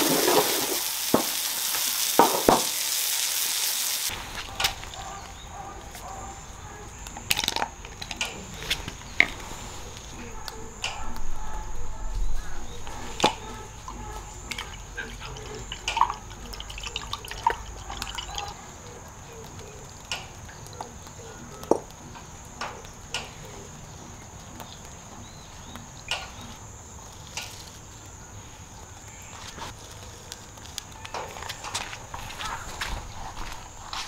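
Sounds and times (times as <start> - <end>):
water drips and splashes: 0.0 - 4.2, 13.2 - 22.0
water pouring onto plants: 0.0 - 4.4, 13.2 - 18.6
water sloshing in a pitcher: 13.1 - 18.6.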